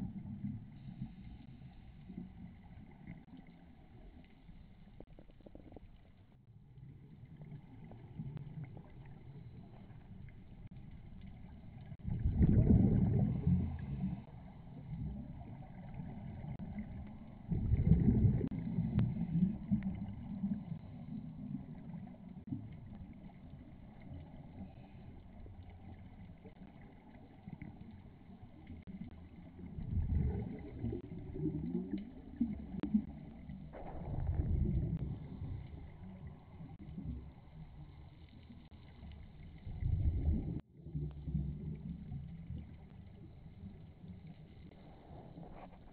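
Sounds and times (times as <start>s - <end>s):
underwater air bubbling: 0.0s - 45.9s.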